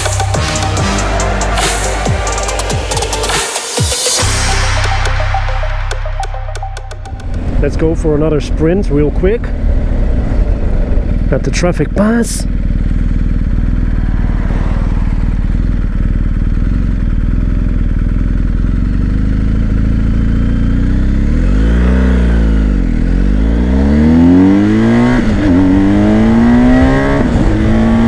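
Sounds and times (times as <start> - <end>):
motorcycle engine revving and accelerating: 7.2 - 28.0.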